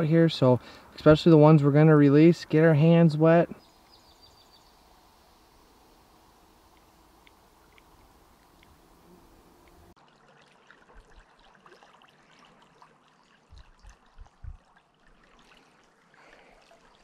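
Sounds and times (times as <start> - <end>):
stream trickling: 0.0 - 17.0
small ticks: 6.7 - 9.9
soft low thumps: 13.6 - 14.6.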